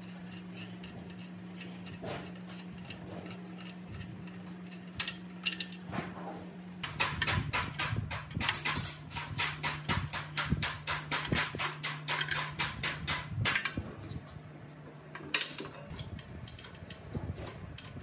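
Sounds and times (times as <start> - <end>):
metal handling sounds: 0.0 - 6.4, 13.5 - 18.0
low steady hum: 0.0 - 18.0.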